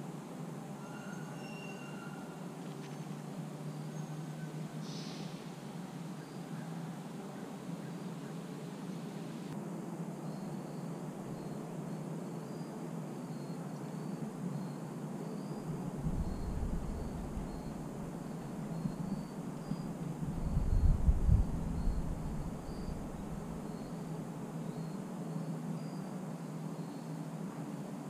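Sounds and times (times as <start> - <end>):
insect chirping: 0.7 - 27.4
outdoor hiss: 4.5 - 28.0
low rumbles: 16.0 - 18.1, 20.2 - 23.6.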